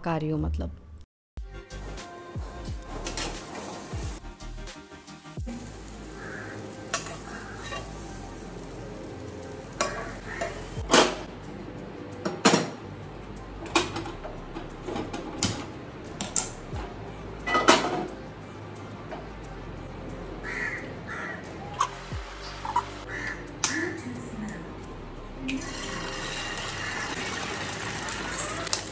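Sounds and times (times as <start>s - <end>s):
vegetables sauteing: 2.8s - 4.2s, 5.2s - 10.8s, 25.5s - 28.9s
metal utensil scraping a pan: 6.2s - 8.0s.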